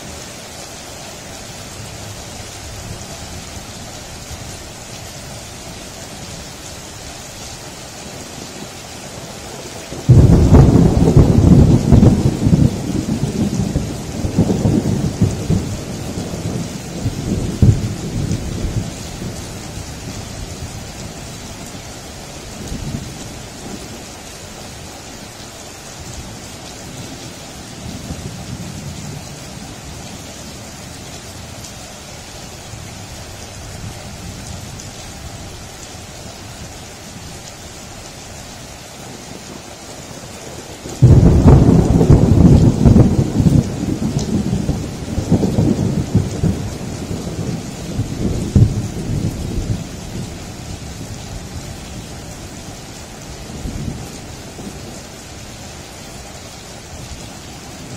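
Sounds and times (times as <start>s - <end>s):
rain falling: 0.0s - 57.9s
thunder rumbling: 9.9s - 21.1s, 41.0s - 51.6s
loud thunderclap: 10.1s - 15.7s, 41.0s - 47.5s, 48.2s - 49.8s.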